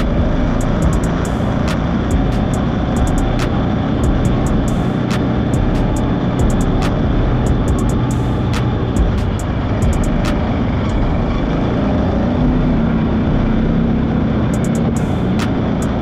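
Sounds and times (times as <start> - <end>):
off-road vehicle engine running: 0.0 - 16.0.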